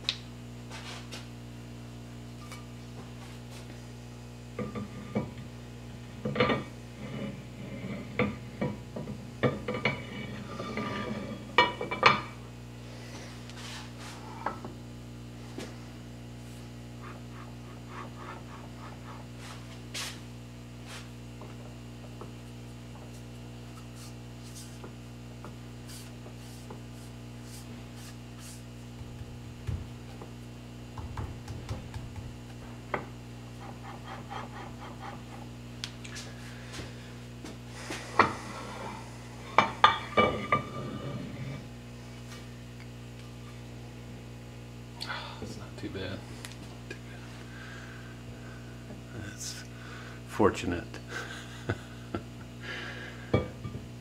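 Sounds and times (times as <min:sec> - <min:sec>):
steady low hum: 0:00.0 - 0:54.0
soft thumps: 0:29.0 - 0:30.3, 0:31.0 - 0:33.1.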